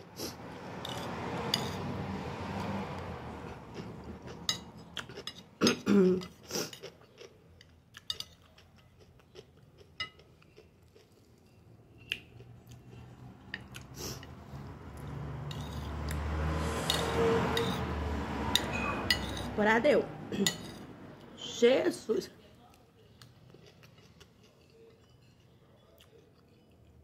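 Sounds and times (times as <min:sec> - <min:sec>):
chewing and biting: 0:06.6 - 0:14.3, 0:23.1 - 0:27.0.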